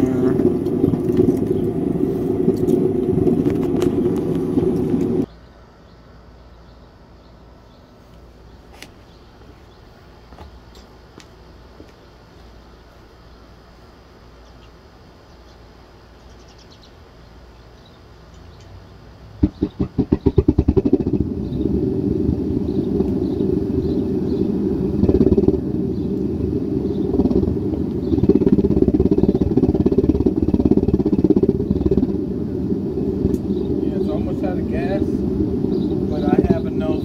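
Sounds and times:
furnace roaring: 0.0 - 5.4, 17.5 - 37.0.

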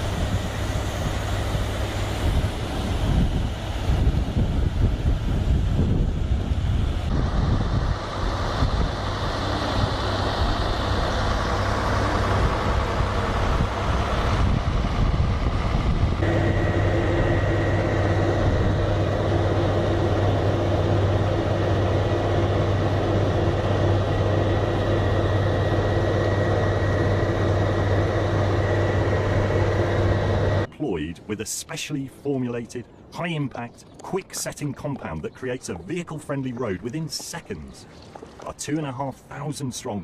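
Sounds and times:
heavy diesel engines running: 0.0 - 33.3
low hum: 0.0 - 38.5
thin high whine: 16.2 - 30.7.

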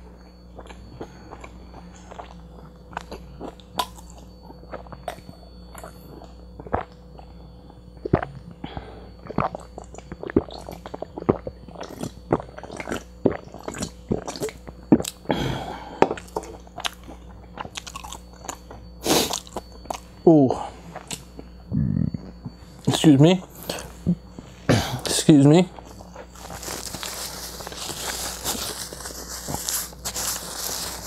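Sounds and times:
person gulping a drink: 9.2 - 15.3
breathy exhale: 15.3 - 16.1.

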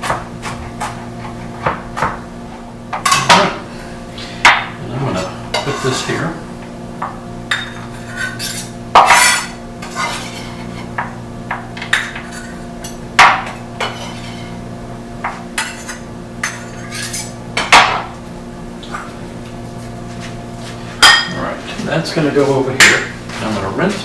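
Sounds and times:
knife chopping on cutting board: 0.0 - 2.2.

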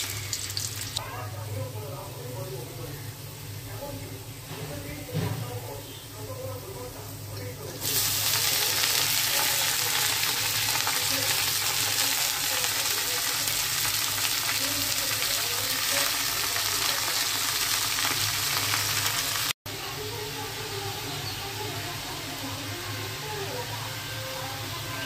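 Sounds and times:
greens sizzling in hot oil: 0.0 - 1.0, 7.1 - 25.0.

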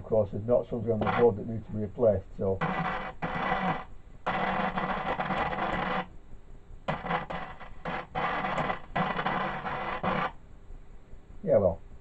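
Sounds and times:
radio hiss and crackle bursts: 0.8 - 6.2, 6.9 - 10.4.

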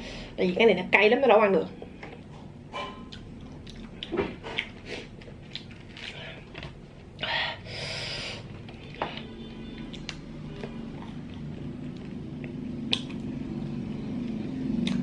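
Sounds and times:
eating clicks and smacks: 9.8 - 13.3, 14.3 - 15.0.

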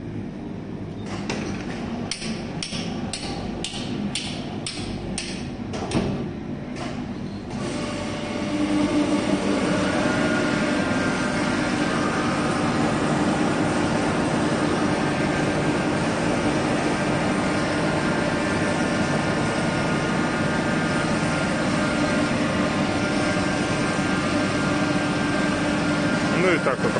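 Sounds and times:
lathe hum with whine: 6.4 - 26.9.

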